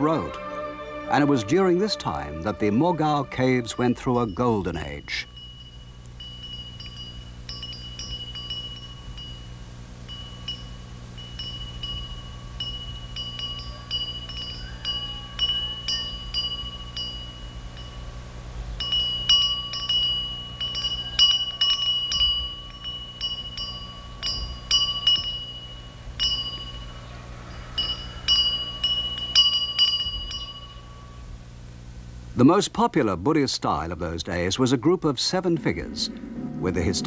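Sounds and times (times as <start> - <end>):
metal wind bells tinkling: 2.7 - 31.4.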